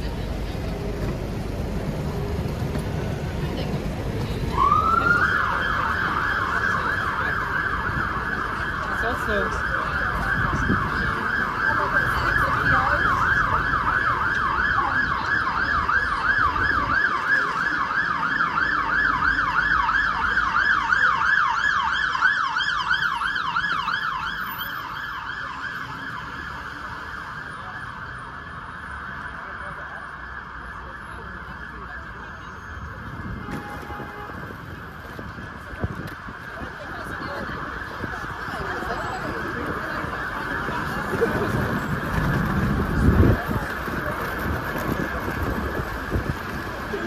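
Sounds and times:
street traffic rumble: 0:00.0 - 0:47.0
emergency siren yelping: 0:04.4 - 0:33.4, 0:34.5 - 0:47.0.

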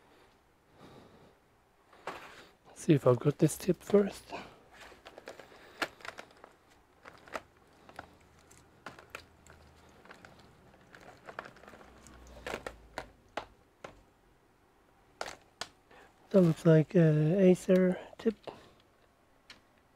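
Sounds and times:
cables and connectors rustling: 0:01.9 - 0:14.1, 0:15.1 - 0:19.9.

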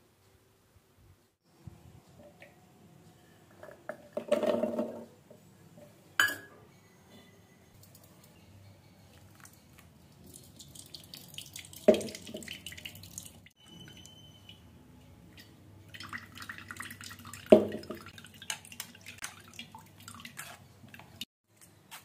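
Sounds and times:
liquid dripping and trickling: 0:10.2 - 0:14.1, 0:15.4 - 0:21.3.

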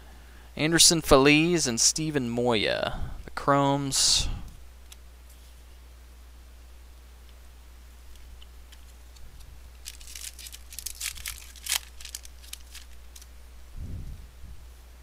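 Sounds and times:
wrapper tearing and crinkling: 0:09.7 - 0:13.3.

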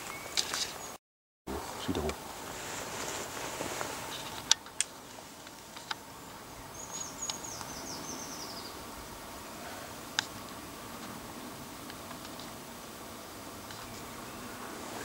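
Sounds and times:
songbird singing: 0:00.0 - 0:02.2, 0:04.0 - 0:11.5, 0:13.1 - 0:15.0
faint outdoor hiss: 0:00.0 - 0:15.0.

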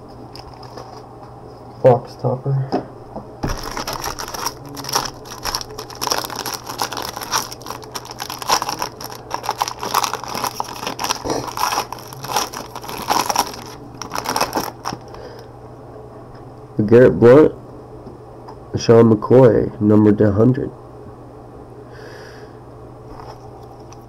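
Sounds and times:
low steady hum: 0:00.0 - 0:24.0
foil wrapper crinkling: 0:03.4 - 0:15.3.

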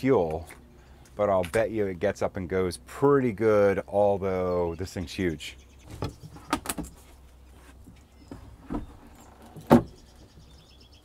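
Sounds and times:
knocks and clunks on boat hatch: 0:08.3 - 0:10.0.

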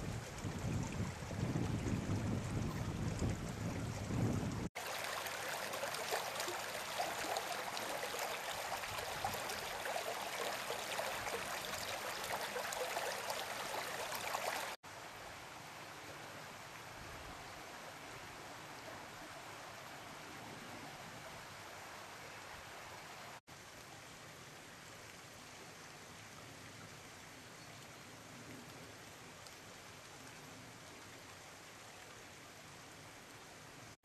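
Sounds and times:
wind rumble on microphone: 0:00.0 - 0:04.7
brook running over stones: 0:00.0 - 0:15.0, 0:21.2 - 0:34.0.

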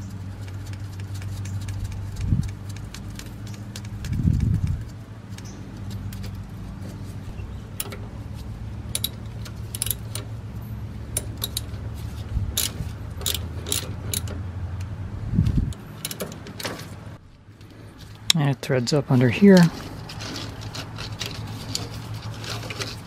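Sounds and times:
metal tools clinking: 0:07.7 - 0:08.0, 0:08.9 - 0:10.3, 0:11.1 - 0:11.8, 0:12.6 - 0:14.4
socket ratchet clicking: 0:08.9 - 0:10.3, 0:11.1 - 0:11.7, 0:12.6 - 0:14.4, 0:15.7 - 0:16.5.

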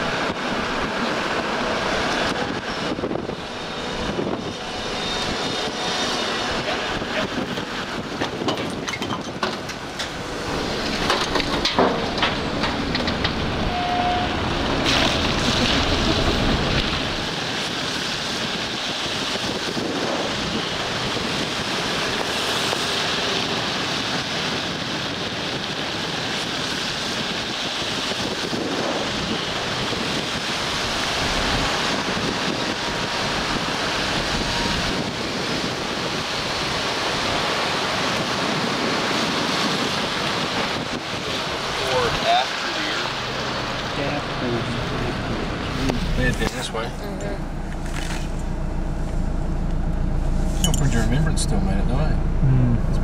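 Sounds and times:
wind noise on microphone: 0:00.0 - 0:42.3
vehicle road noise: 0:00.0 - 0:53.0
knocks and clatter: 0:07.5 - 0:10.2, 0:10.9 - 0:13.5.

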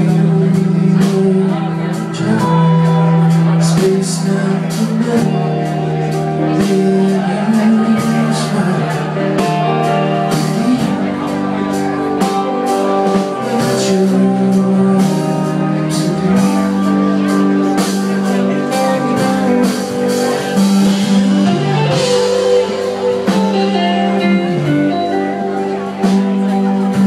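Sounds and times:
bass guitar: 0:00.0 - 0:27.0
drum kit: 0:00.0 - 0:27.0
electric guitars sustained notes: 0:00.0 - 0:27.0.

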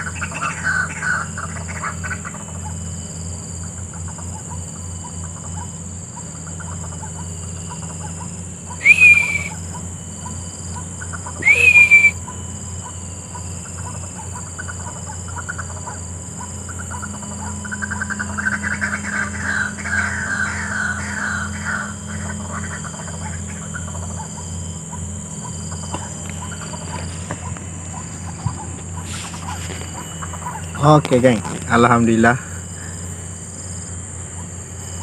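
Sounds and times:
repeated wak bird calls: 0:00.0 - 0:35.0
sharp rising bird call: 0:08.7 - 0:09.6, 0:11.2 - 0:12.3, 0:17.8 - 0:24.5.

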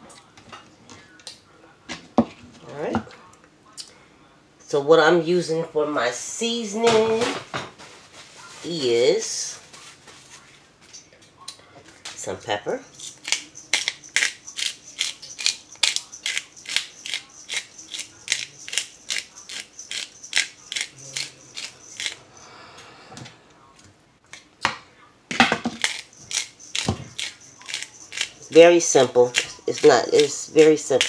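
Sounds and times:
pepper shaker rattling: 0:12.1 - 0:22.5, 0:25.7 - 0:31.0.

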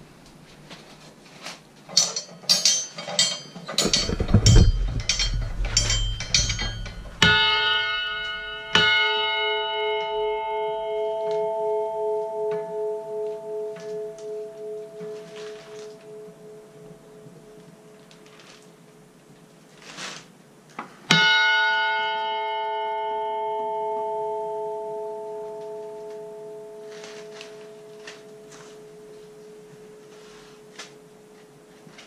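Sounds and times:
quick knocks and clatters: 0:01.9 - 0:08.6
church bell ringing: 0:02.6 - 0:18.2, 0:21.2 - 0:31.4
low rumble: 0:03.8 - 0:08.8.

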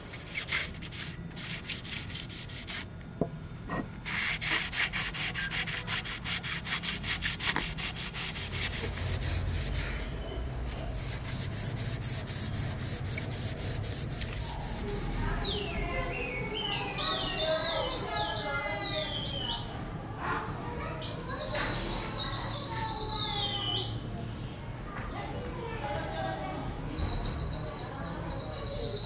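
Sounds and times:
sandpaper rubbing on wood: 0:00.0 - 0:02.9, 0:04.0 - 0:10.1, 0:10.7 - 0:15.3.

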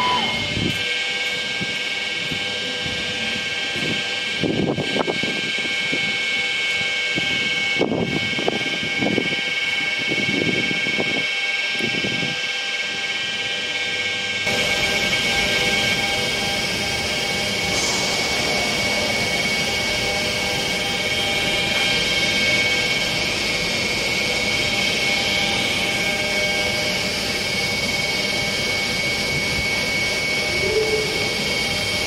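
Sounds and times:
train high-pitched whine: 0:00.0 - 0:32.0
train rumbling and clattering: 0:14.5 - 0:24.4.

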